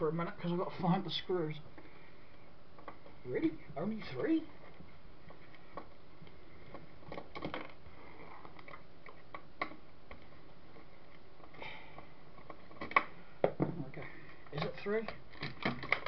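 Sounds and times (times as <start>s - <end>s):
steady low hiss: 0.0s - 16.0s
faint clicks and taps of handling: 1.7s - 3.2s.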